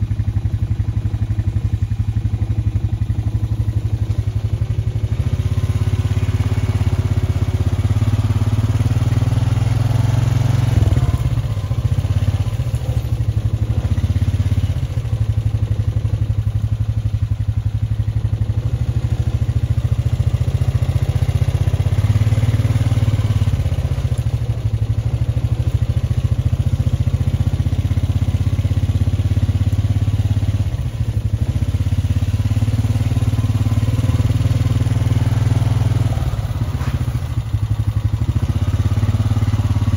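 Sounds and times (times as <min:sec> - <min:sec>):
engine running steadily: 0:00.0 - 0:39.9.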